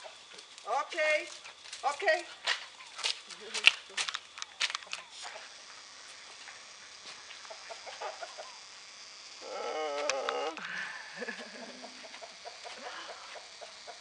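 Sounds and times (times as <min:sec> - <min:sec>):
chickens clucking: 0:11.7 - 0:14.0.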